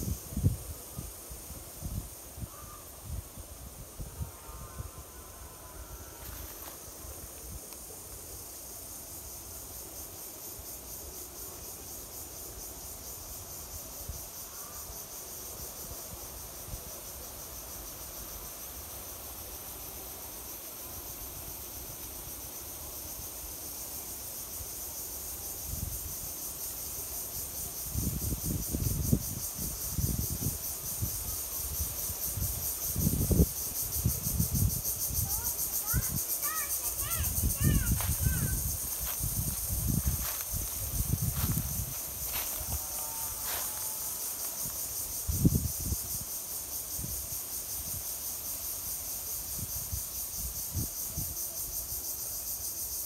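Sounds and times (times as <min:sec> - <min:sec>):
insect chorus drone: 0:00.0 - 0:53.0
wind buffeting microphone: 0:36.9 - 0:43.6.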